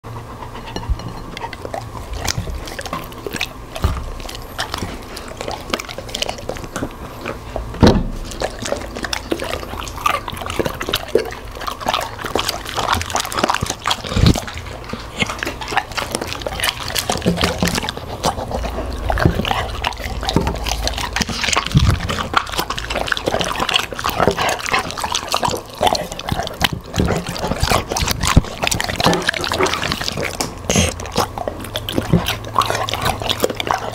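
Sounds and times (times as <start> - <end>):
dogs crunching and chewing: 0.0 - 33.9
wet mouth and licking: 0.6 - 33.9.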